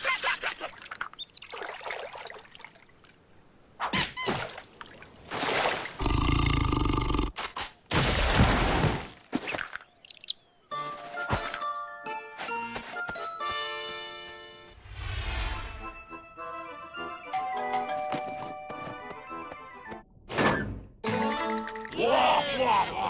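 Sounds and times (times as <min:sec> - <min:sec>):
squeaky warbling chirps: 0:00.0 - 0:01.5, 0:09.9 - 0:10.4.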